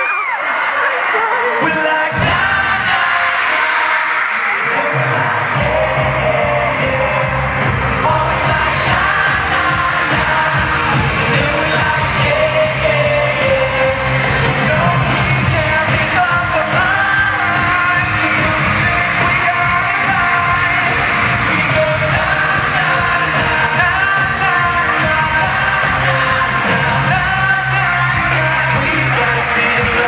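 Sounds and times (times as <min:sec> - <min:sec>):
yells: 0:00.0 - 0:05.9
men singing into microphones: 0:00.4 - 0:30.0
amplified band playing: 0:01.6 - 0:30.0.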